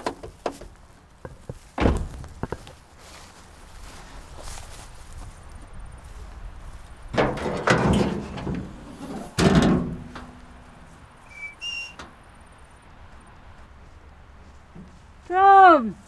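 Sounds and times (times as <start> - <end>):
clattering and thumps in truck bed: 0.0 - 2.7, 7.1 - 10.9
loud clunk: 7.2 - 10.6
high whistle notes: 11.2 - 12.0.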